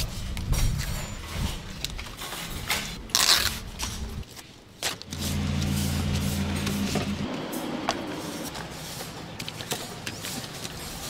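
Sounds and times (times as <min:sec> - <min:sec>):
low background rumble: 0:05.1 - 0:08.6.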